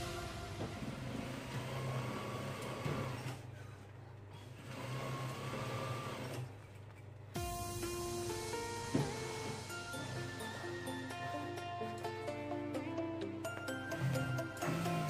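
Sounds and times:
sewing machine stitching: 0:01.1 - 0:03.5, 0:04.4 - 0:06.6, 0:13.9 - 0:15.0.

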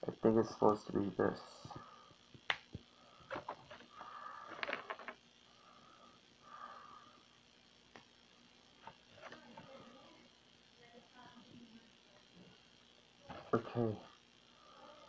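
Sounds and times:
soft breathing: 0:01.6 - 0:07.5, 0:14.4 - 0:15.0.

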